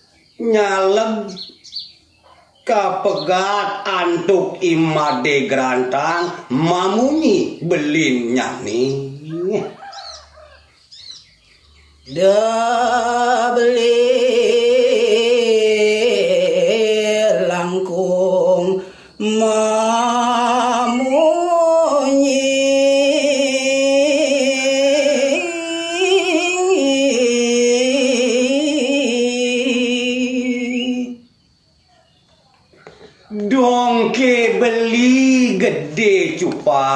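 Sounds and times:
man singing solo: 0:12.1 - 0:31.2.

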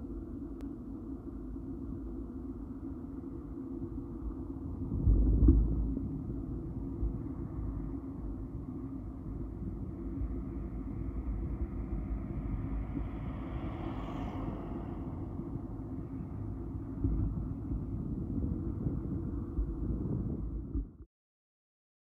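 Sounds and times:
steady road traffic noise: 0:00.0 - 0:20.9
car passing by: 0:09.8 - 0:17.9.

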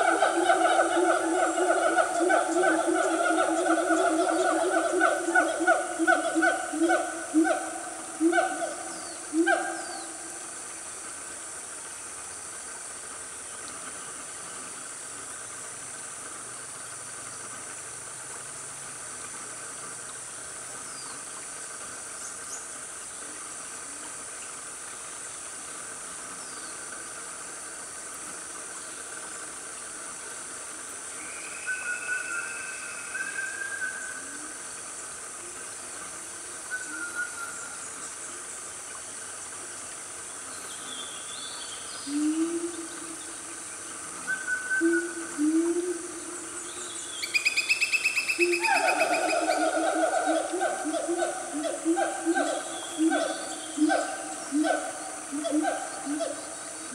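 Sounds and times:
drone of insects: 0:00.0 - 0:56.9
animal calls: 0:47.3 - 0:56.9.

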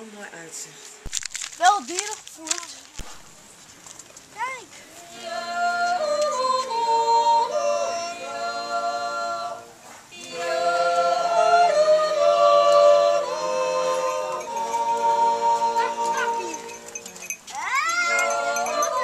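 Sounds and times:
voices singing long notes: 0:05.0 - 0:19.0.

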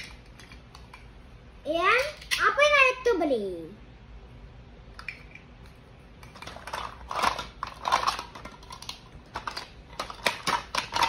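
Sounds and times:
plastic toy pieces clattering: 0:00.0 - 0:01.0, 0:01.9 - 0:02.5, 0:06.2 - 0:11.0.

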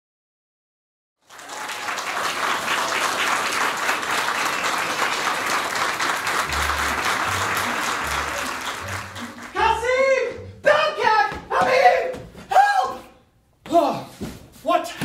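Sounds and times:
audience applauding: 0:01.2 - 0:09.8.

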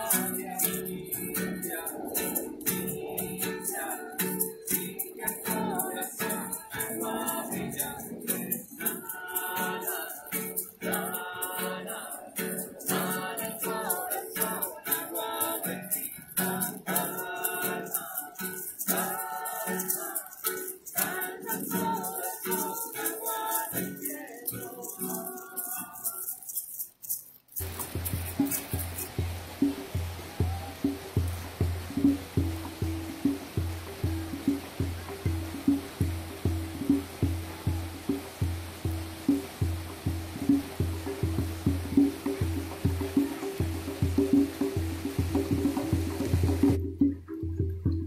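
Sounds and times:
strummed acoustic guitar: 0:00.0 - 0:26.5, 0:27.6 - 0:48.0
voices singing together: 0:00.0 - 0:26.8
hand shakers rattling: 0:00.0 - 0:47.4.

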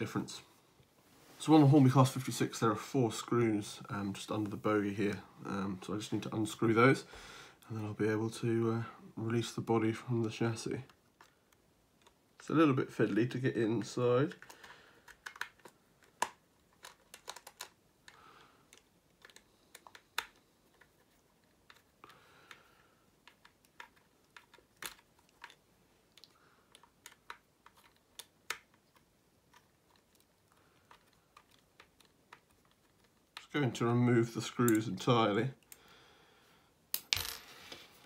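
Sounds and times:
plastic model being handled: 0:09.4 - 0:35.8.

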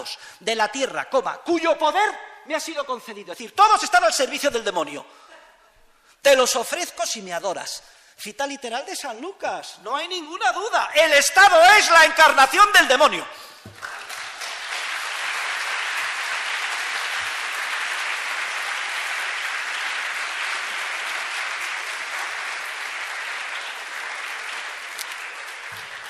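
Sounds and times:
audience applauding: 0:13.7 - 0:26.0.

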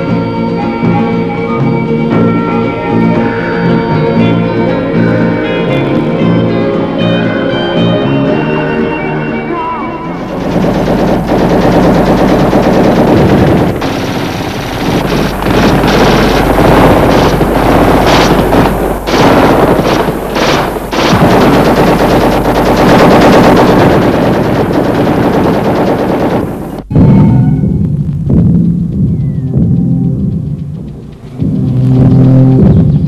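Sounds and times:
machine gun bursts: 0:10.2 - 0:26.9.

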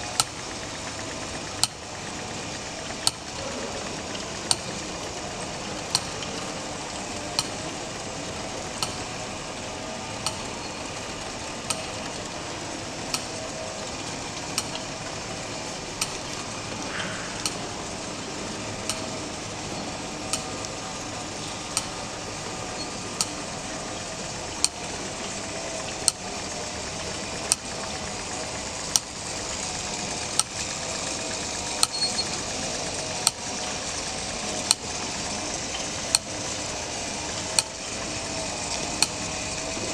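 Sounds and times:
mechanism hissing: 0:00.0 - 0:27.6
mechanism clicking: 0:01.6 - 0:01.8, 0:05.7 - 0:06.5, 0:07.3 - 0:07.8, 0:08.7 - 0:09.4, 0:10.2 - 0:12.2, 0:12.9 - 0:18.1, 0:18.7 - 0:23.5, 0:38.7 - 0:39.8.

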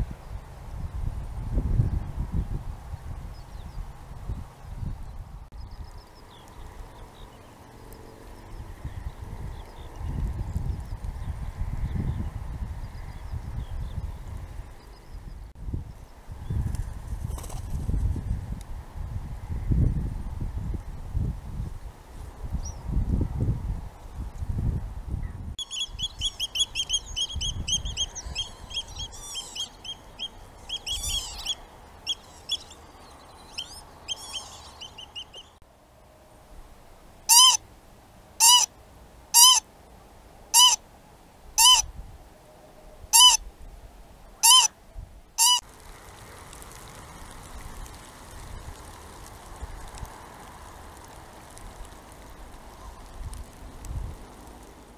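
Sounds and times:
low wind rumble: 0:00.0 - 0:54.9
small birds singing: 0:25.2 - 0:35.6
loud bird calls: 0:25.6 - 0:35.6, 0:38.4 - 0:38.7, 0:40.6 - 0:40.8.

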